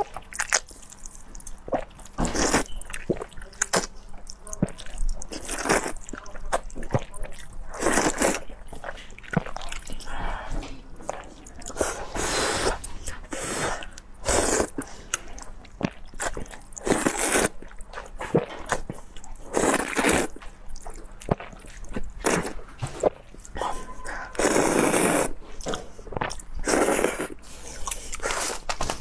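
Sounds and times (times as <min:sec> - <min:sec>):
wet chewing and mouth clicks: 0:00.0 - 0:29.0
noodles slurped: 0:04.6 - 0:10.2, 0:11.1 - 0:20.5, 0:21.3 - 0:29.0.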